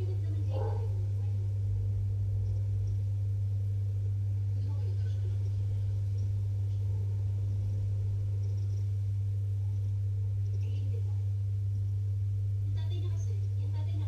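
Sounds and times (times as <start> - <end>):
faint voices: 0.0 - 2.3, 3.9 - 8.0
low hum: 0.0 - 14.0.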